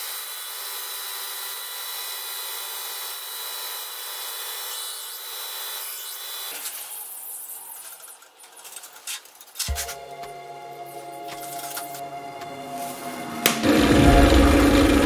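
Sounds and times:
belt grinder grinding steel: 0.0s - 10.2s.

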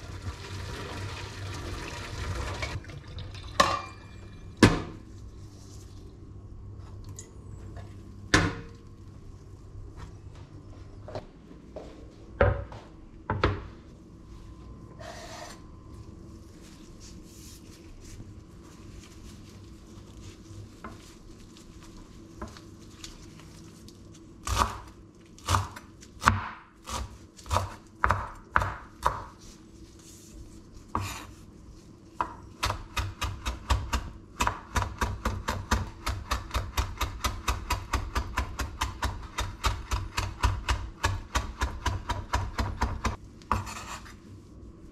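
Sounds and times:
knife chopping herbs on board: 25.5s - 29.4s, 32.2s - 44.0s.

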